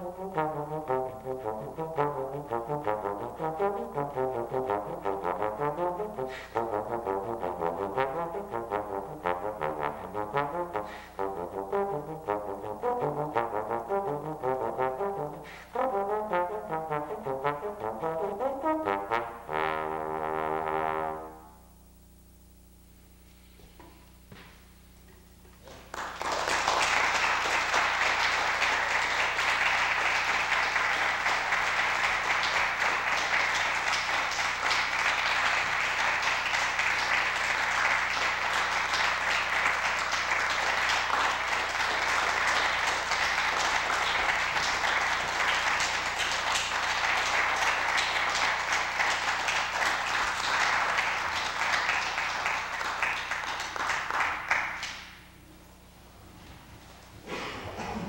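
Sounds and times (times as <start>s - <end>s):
audience applauding: 25.6s - 55.3s.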